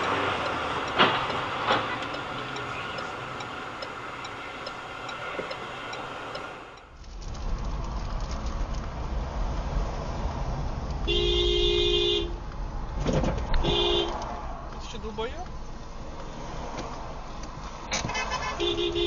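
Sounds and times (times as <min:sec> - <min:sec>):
light ticking: 0:00.0 - 0:06.9
engine and road rumble: 0:00.0 - 0:19.0.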